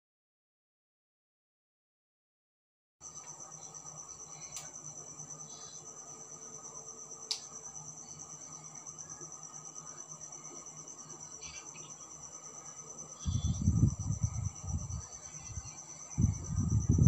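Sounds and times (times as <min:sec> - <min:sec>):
crickets chirping: 0:03.0 - 0:17.0
sharp click: 0:07.3 - 0:07.5.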